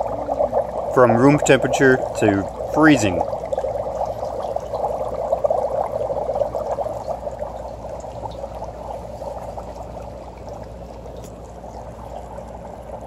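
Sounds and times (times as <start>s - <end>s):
dry ice bubbling in water: 0.0s - 13.0s.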